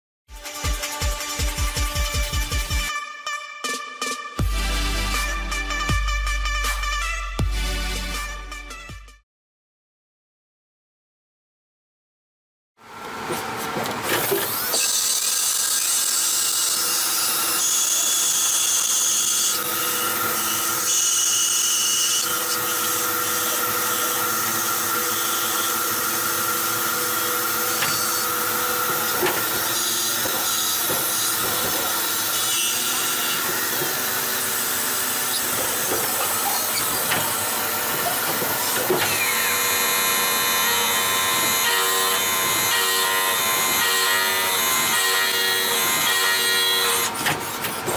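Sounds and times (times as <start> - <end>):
tool drilling metal: 14.2 - 47.9
lathe cutting metal whine: 14.7 - 47.8.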